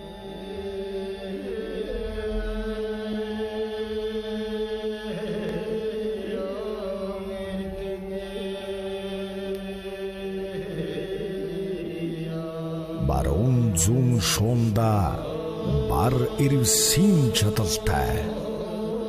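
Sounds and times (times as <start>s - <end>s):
men throat singing: 4.7s - 7.4s, 12.8s - 19.0s.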